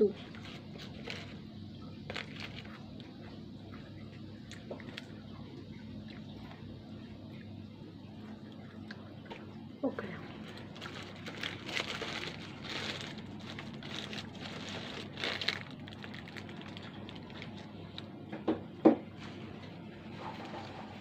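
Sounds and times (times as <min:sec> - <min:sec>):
paper wrapper crinkling: 0:00.1 - 0:03.3, 0:10.3 - 0:18.1.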